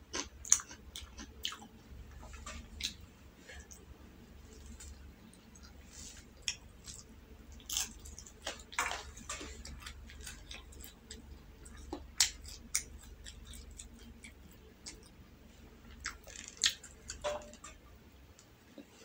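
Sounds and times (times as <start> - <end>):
close chewing mouth clicks: 9.6 - 15.3, 15.9 - 17.2.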